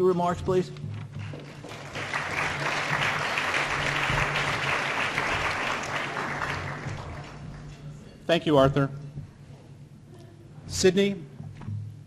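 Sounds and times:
audience applauding: 1.2 - 7.8.

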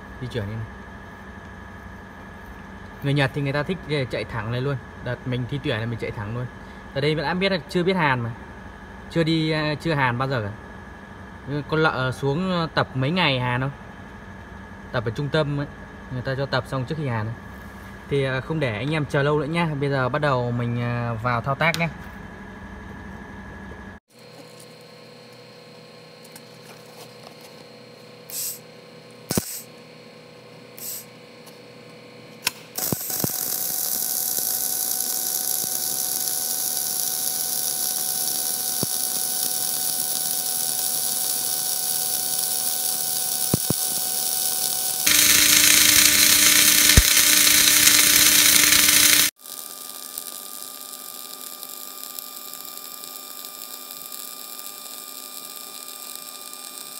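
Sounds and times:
welding arc sizzling hiss: 28.3 - 28.7, 29.3 - 29.7, 30.8 - 31.2, 32.5 - 56.9
low hum: 45.1 - 49.3.

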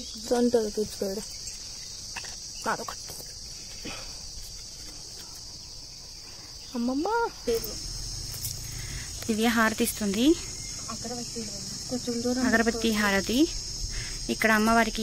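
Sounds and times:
insects droning: 0.0 - 15.0
women's voices: 9.1 - 13.6, 14.2 - 15.0.

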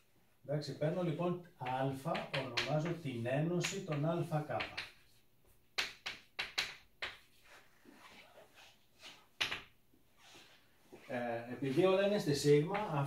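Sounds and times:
chalk tapping on chalkboard: 1.6 - 3.0.

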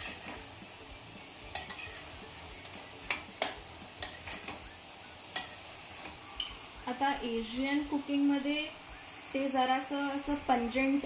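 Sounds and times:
utensil scraping a pan: 0.0 - 0.5, 1.5 - 4.6
faint sizzle: 0.0 - 11.0.

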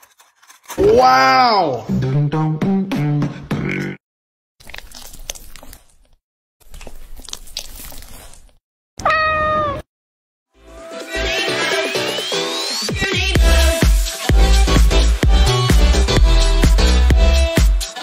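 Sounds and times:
person speaking: 0.8 - 1.9
crackly squishing of toy: 4.6 - 8.6
cat meow: 9.0 - 9.9.

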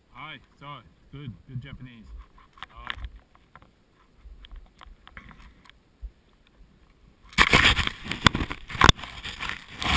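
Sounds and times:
faint scattered clicks: 1.6 - 7.0
skis sliding through snow: 7.4 - 9.9.

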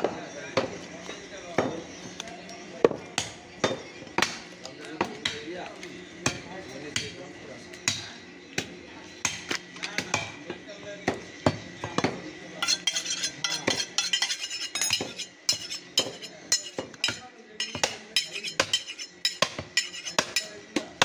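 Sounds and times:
knife chopping meat on block: 11.5 - 20.5.

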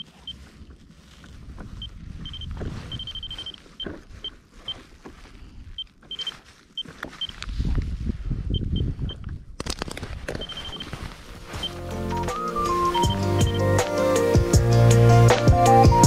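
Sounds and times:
low wind rumble: 0.0 - 4.3, 7.4 - 13.6
gloved hands rustling: 0.0 - 8.4, 9.3 - 14.5
short high electronic beeps: 2.2 - 3.6, 12.6 - 13.6.

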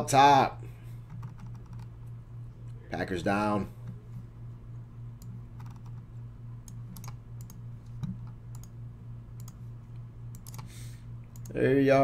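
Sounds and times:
steady low hum: 0.0 - 12.0
keyboard and mouse clicks: 1.1 - 1.9, 5.2 - 6.0, 6.6 - 8.8, 9.4 - 9.6, 10.3 - 10.7.

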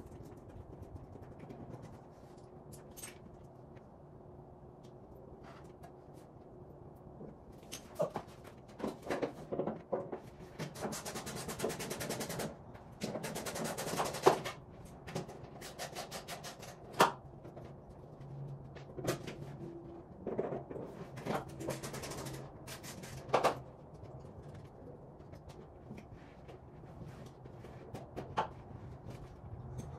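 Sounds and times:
rapid clicking of hand tool: 10.6 - 14.6, 15.2 - 17.1.

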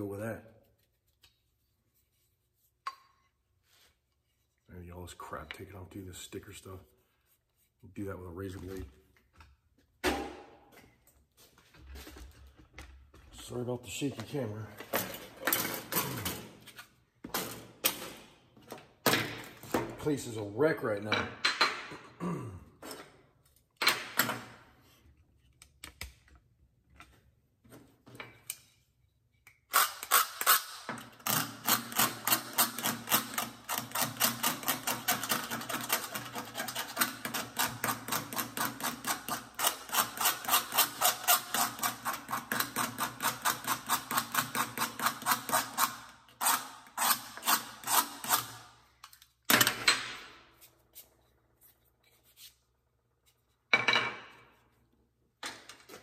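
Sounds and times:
razor blade scraping wood: 29.8 - 48.8.

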